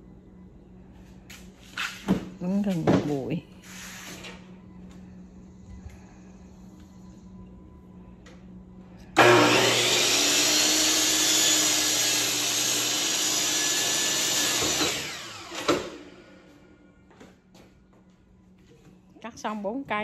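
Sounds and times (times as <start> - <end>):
miter saw cutting wood: 9.2 - 16.1
saw winding down: 9.2 - 16.1.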